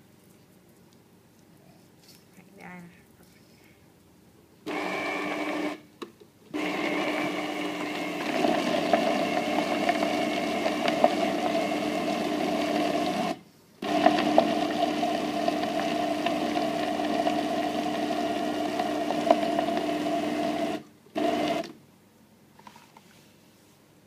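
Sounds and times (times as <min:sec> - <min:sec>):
electric blender running: 0:04.7 - 0:05.8, 0:06.5 - 0:21.8.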